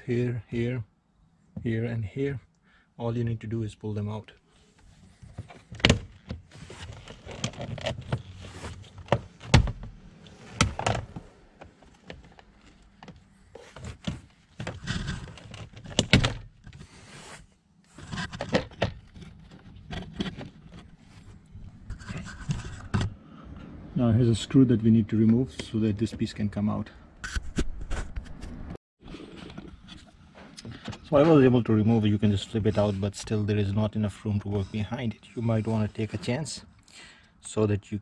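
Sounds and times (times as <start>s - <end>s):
plastic panel scraping and rattling: 5.2s - 17.0s, 17.9s - 23.2s.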